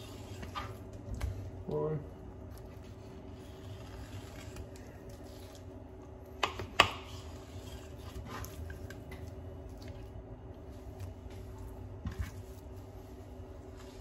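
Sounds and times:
steady low hum: 0:00.0 - 0:14.0
wet scraping: 0:02.6 - 0:05.8.

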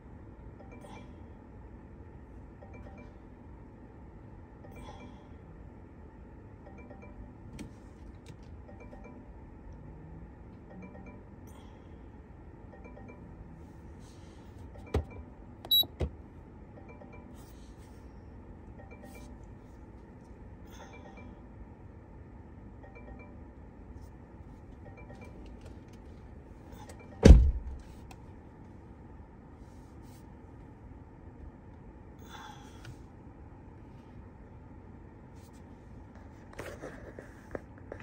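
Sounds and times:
low background hum: 0:00.0 - 0:38.0
short high beep: 0:15.7 - 0:15.9
button clicks: 0:15.7 - 0:16.0.

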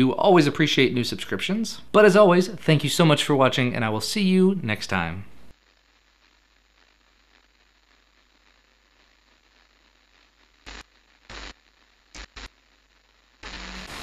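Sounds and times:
faint hiss: 0:00.0 - 0:14.0
loud continuous static: 0:00.0 - 0:14.0
electronic static glitch bursts: 0:13.4 - 0:14.0.

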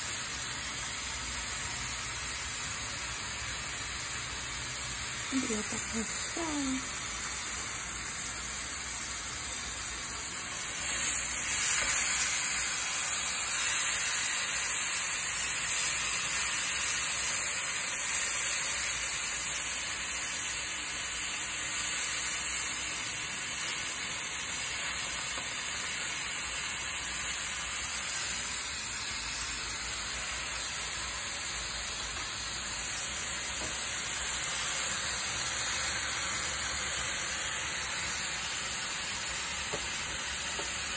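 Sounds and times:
pork chops sizzling on grill: 0:00.0 - 0:40.9.

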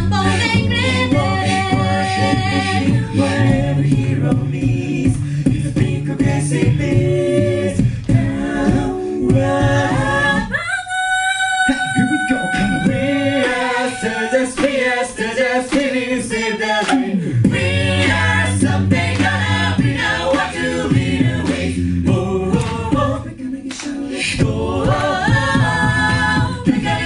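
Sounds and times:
low vocal bass line: 0:00.0 - 0:10.5, 0:11.7 - 0:14.3, 0:16.9 - 0:27.0
a cappella group singing: 0:00.0 - 0:27.0.

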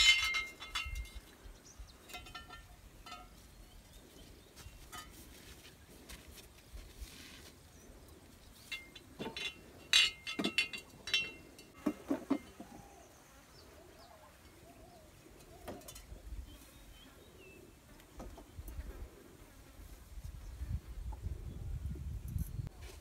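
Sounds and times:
glass bottles clinking: 0:00.0 - 0:01.2, 0:02.0 - 0:03.4, 0:08.7 - 0:12.6
faint bird calls: 0:12.4 - 0:17.9.

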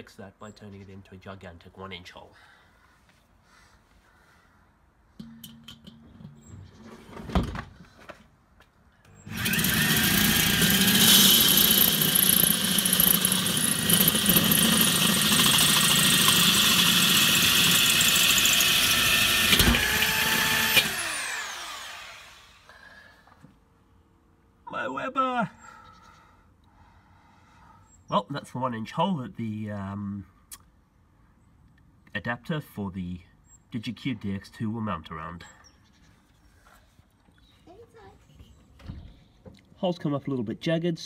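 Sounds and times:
drill motor winding down: 0:09.1 - 0:22.8
drill with hole saw cutting steel: 0:09.1 - 0:22.8.

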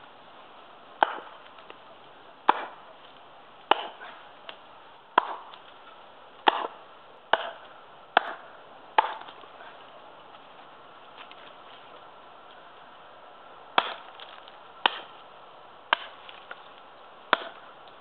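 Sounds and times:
axe chopping wood: 0:01.0 - 0:01.8, 0:02.4 - 0:02.9, 0:03.6 - 0:09.8, 0:13.7 - 0:15.2, 0:15.9 - 0:16.6, 0:17.3 - 0:18.0.

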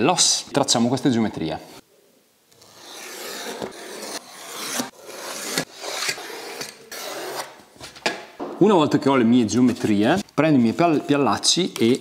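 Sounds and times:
pencil scratching on wood: 0:02.6 - 0:07.5.

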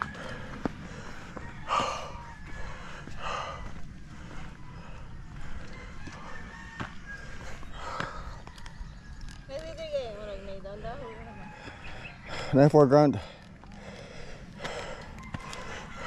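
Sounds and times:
chicken calling: 0:00.0 - 0:03.7
low outdoor rumble: 0:00.0 - 0:16.0.

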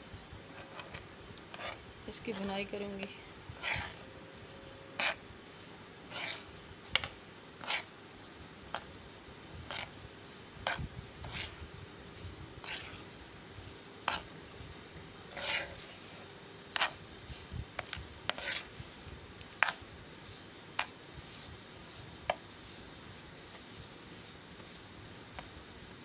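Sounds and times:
spoon scraping frying pan: 0:00.6 - 0:05.2, 0:06.1 - 0:07.9, 0:15.2 - 0:17.0.

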